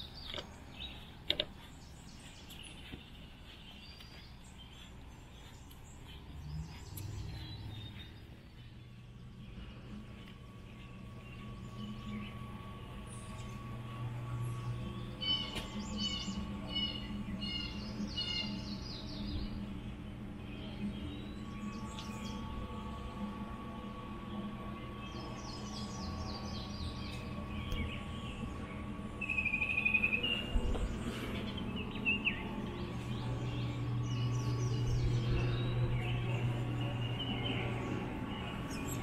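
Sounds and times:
birds chirping: 0.0 - 39.0
steady low hum: 0.0 - 39.0
bird whistle: 29.2 - 30.5.

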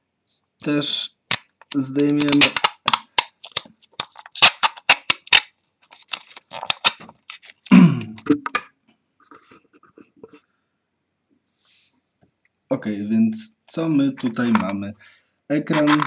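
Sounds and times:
plastic film crinkling: 1.4 - 7.7.

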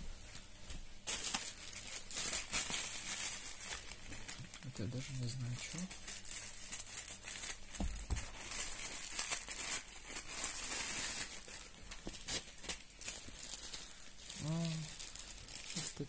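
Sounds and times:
plastic bag crinkling: 1.0 - 16.0
person humming: 14.3 - 15.0.

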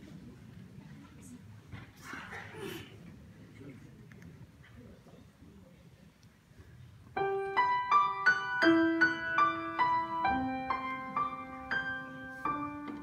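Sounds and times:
grand piano solo: 7.2 - 13.0.

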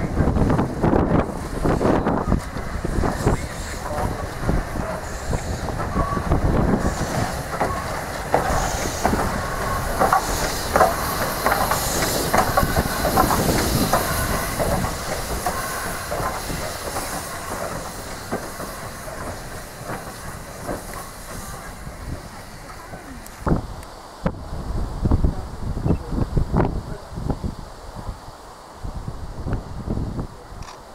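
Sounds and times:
locomotive wheels clanking on rails: 0.0 - 23.6
steam hissing: 0.0 - 30.9.

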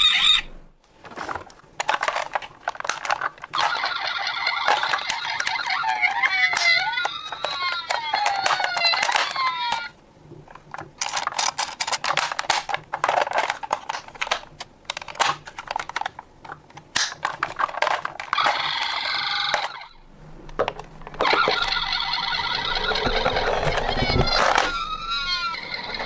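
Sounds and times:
toy electronic sound module: 0.0 - 0.5, 3.6 - 9.9, 18.4 - 20.0, 21.2 - 26.0
plastic toy clicks and clacks: 1.8 - 9.9, 10.5 - 19.9.

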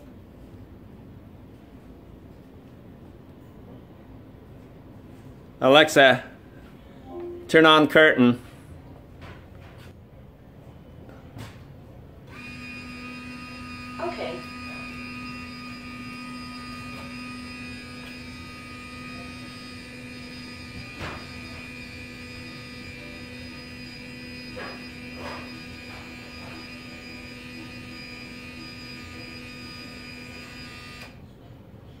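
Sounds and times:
electric curtain motor whining: 12.2 - 31.2.

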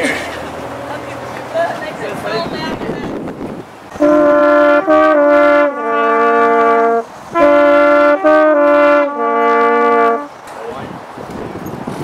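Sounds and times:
french horn: 3.9 - 10.3
trumpet: 3.9 - 10.3.

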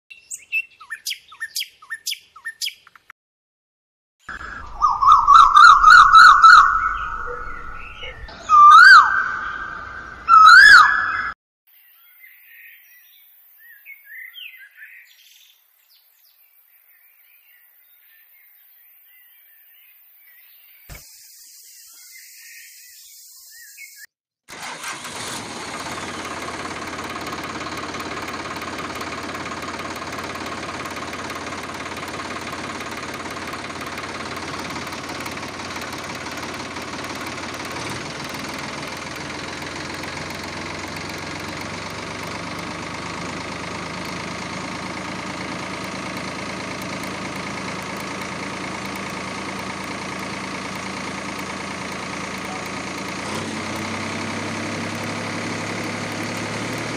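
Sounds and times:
tractor engine: 24.5 - 56.9.

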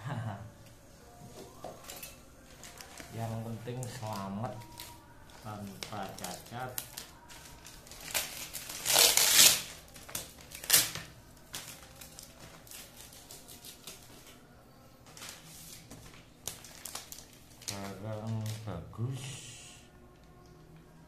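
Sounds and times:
plastic wrap crinkling: 1.1 - 18.9
packing tape tearing: 3.8 - 14.1, 16.4 - 18.7.

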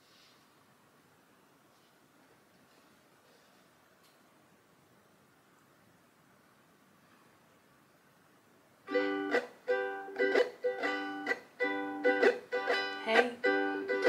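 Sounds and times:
ukulele strumming: 8.9 - 14.0.

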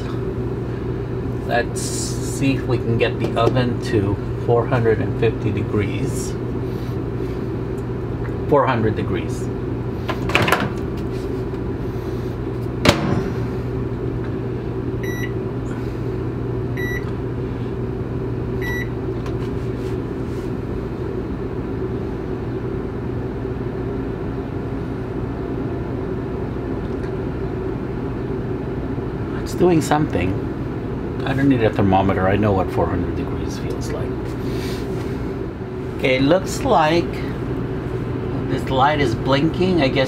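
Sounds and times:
steady low hum: 0.0 - 40.0
microwave short high beeps: 15.0 - 15.4, 16.8 - 17.1, 18.6 - 19.0.

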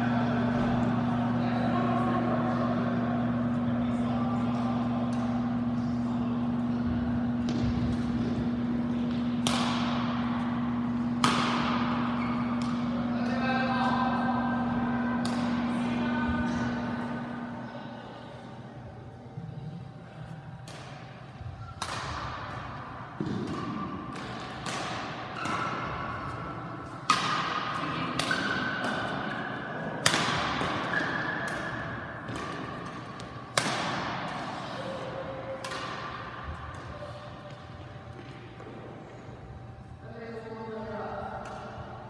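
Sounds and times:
rackets hitting shuttlecock: 4.5 - 17.5, 20.6 - 38.8.

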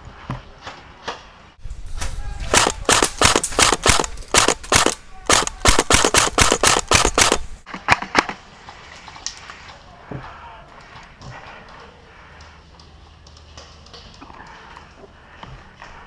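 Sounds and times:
airsoft gun shots: 2.5 - 7.6.

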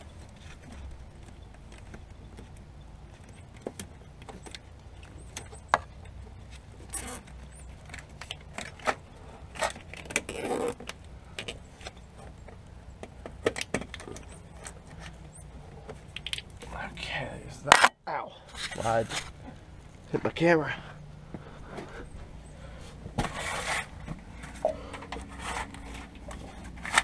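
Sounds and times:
clicks and rattles of wiring: 0.0 - 16.8, 23.2 - 27.0
steady low hum: 0.0 - 27.0.

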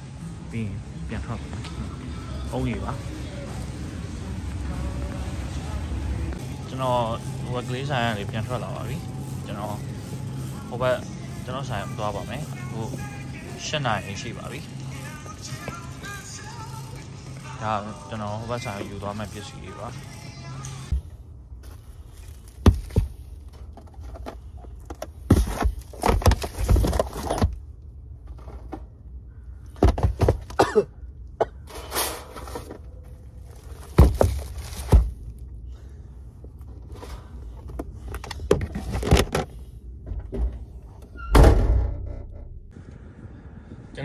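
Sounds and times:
containers thunking on car floor: 29.8 - 30.8, 33.8 - 35.2
plastic wrap crinkling: 33.3 - 35.0
rear hatch shutting: 41.2 - 42.7.

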